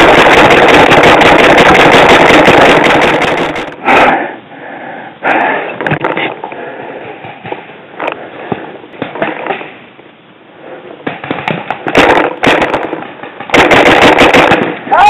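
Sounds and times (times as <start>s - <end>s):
paintball markers firing: 0.0s - 3.8s.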